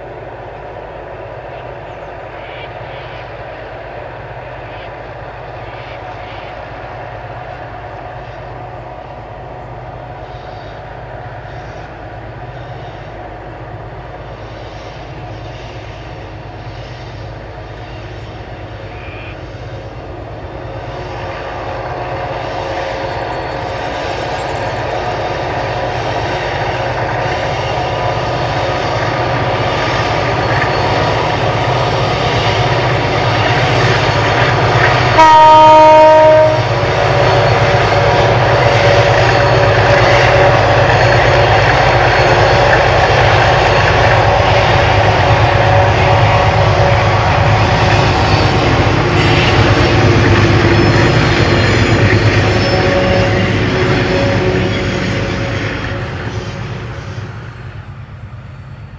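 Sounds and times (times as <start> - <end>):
diesel locomotive engines droning: 0.0 - 58.9
locomotive horn blast: 35.1 - 37.0, 52.4 - 56.9.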